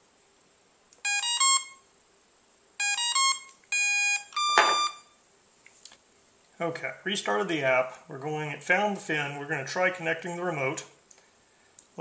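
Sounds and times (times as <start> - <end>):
electronic beep tones: 1.0 - 1.8, 2.8 - 5.2.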